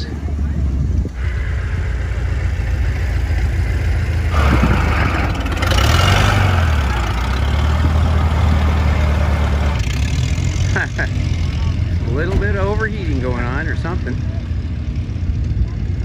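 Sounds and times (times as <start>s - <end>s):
car engine running at low revs: 0.0s - 16.0s
rushing noise: 1.1s - 9.8s.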